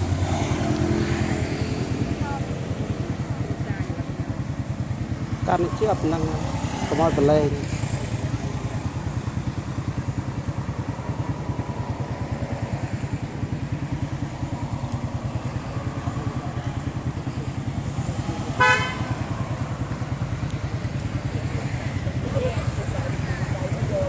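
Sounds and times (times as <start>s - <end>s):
motorcycle engine idling: 0.0s - 24.0s
vehicle horn toot: 18.6s - 19.2s.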